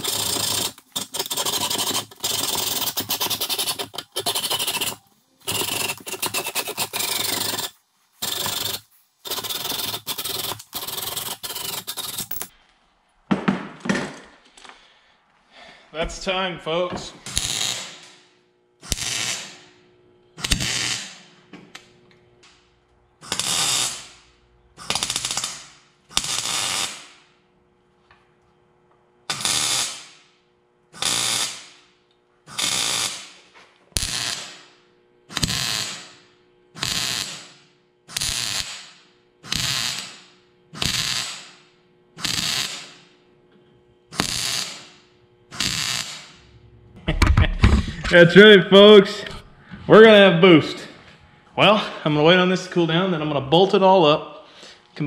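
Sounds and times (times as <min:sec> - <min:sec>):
welding arc crackling: 0:00.0 - 0:12.5, 0:17.2 - 0:18.2, 0:18.8 - 0:19.7, 0:20.4 - 0:21.3, 0:23.2 - 0:27.4, 0:29.3 - 0:30.3, 0:31.0 - 0:31.8, 0:32.5 - 0:33.4, 0:34.0 - 0:34.7, 0:35.4 - 0:36.2, 0:36.8 - 0:43.1, 0:44.2 - 0:47.2.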